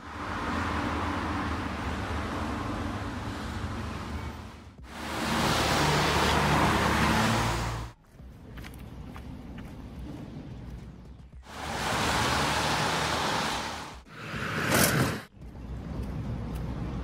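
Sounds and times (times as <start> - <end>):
tyre hiss on wet street: 4.9 - 7.9, 11.4 - 14.3.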